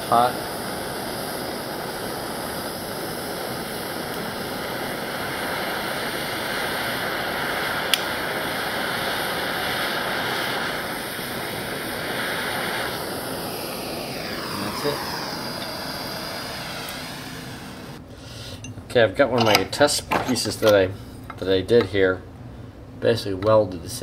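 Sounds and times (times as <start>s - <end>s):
gas torch hissing: 0.0s - 18.0s.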